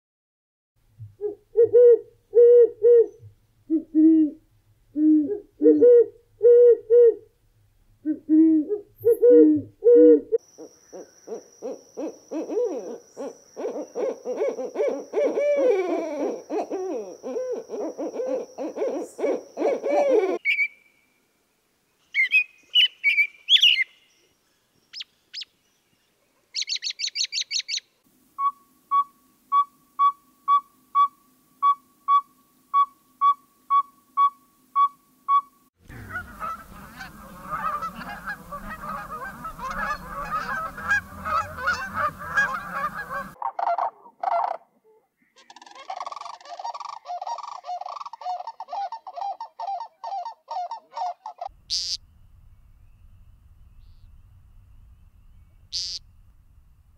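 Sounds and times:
bird tooting: 9.0s - 20.9s, 22.2s - 24.1s, 26.6s - 44.6s, 45.2s - 56.9s
robin singing: 20.4s - 21.0s, 22.0s - 43.4s, 51.5s - 56.9s
cranes rattling bugle: 35.8s - 43.4s, 51.5s - 56.9s
geese honking: 35.8s - 43.4s, 50.9s - 52.3s, 52.9s - 56.8s.

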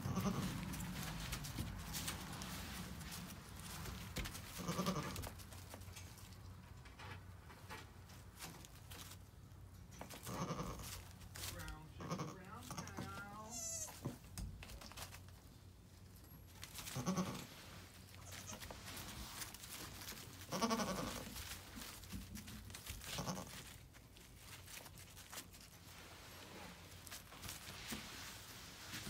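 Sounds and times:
goats bleating: 0.0s - 0.5s, 20.5s - 21.2s
rustling and crunching of bedding: 0.0s - 29.0s.

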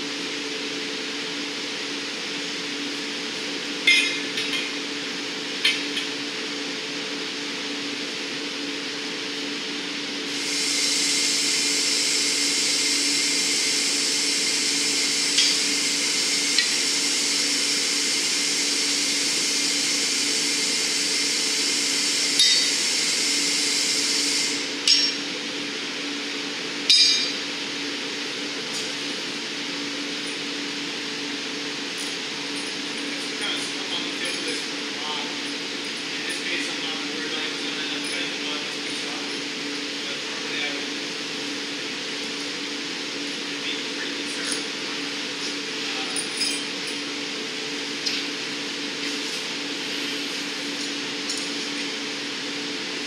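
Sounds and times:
furnace humming: 0.0s - 53.0s
metal tools clinking on steel: 26.9s - 27.4s, 46.0s - 47.1s.

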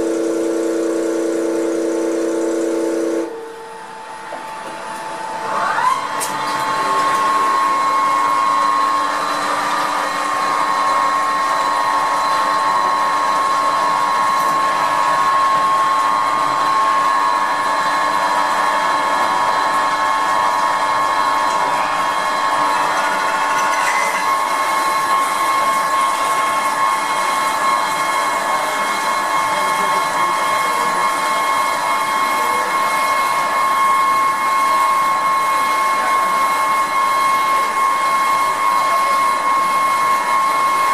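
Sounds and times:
lathe spindle whine: 0.0s - 40.9s.

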